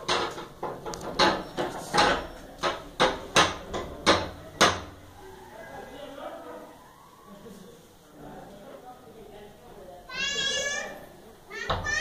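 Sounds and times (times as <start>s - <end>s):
sharp knocks: 0.0s - 5.0s.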